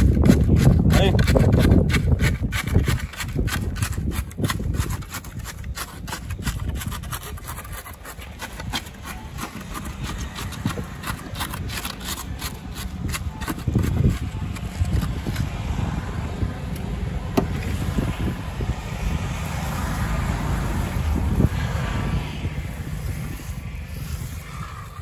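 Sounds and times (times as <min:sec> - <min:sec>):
rammer scraping and knocking concrete: 0:00.0 - 0:16.0, 0:17.3 - 0:18.4.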